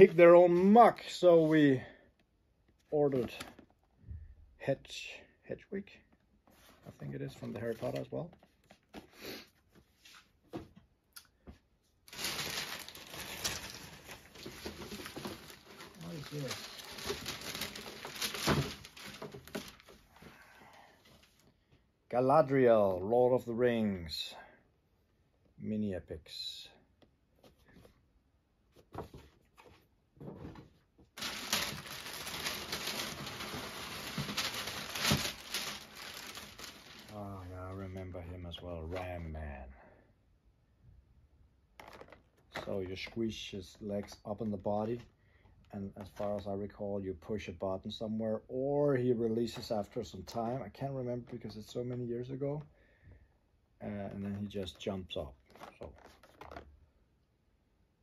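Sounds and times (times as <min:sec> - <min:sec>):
cardboard box rustling: 0:12.1 - 0:19.9, 0:31.2 - 0:37.1.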